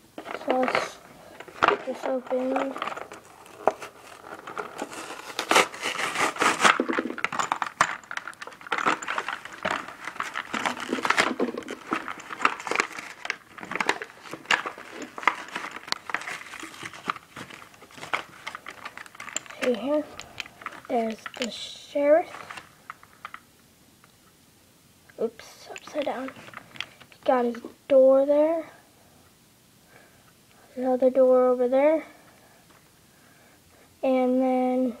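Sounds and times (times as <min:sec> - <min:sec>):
plastic crinkling: 0:00.2 - 0:23.5, 0:25.7 - 0:27.2
card backing tearing: 0:02.3 - 0:07.3, 0:08.8 - 0:19.0.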